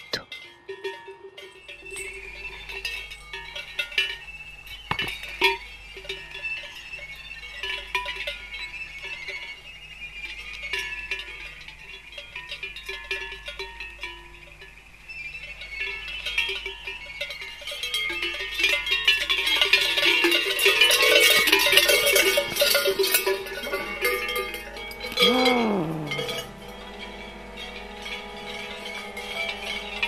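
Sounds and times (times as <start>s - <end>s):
cowbells clanging: 0.0s - 30.0s
sustained ringing tones: 0.3s - 30.0s
deep falling cry: 24.9s - 29.5s.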